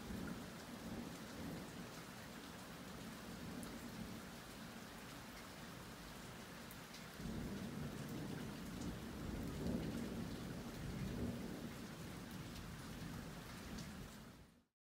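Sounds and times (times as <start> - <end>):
low rumble of thunder: 0.0 - 2.0, 3.0 - 4.2, 7.1 - 14.1
steady rain falling: 0.0 - 14.7.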